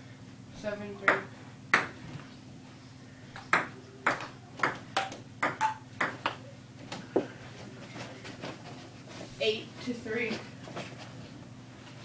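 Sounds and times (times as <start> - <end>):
ping pong ball clicking: 3.4 - 6.4.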